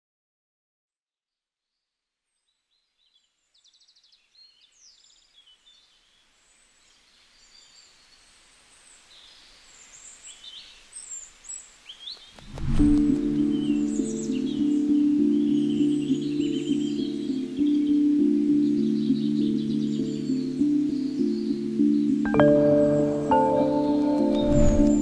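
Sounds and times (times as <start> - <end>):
small birds chirping and trilling: 2.3 - 12.5, 13.2 - 25.0.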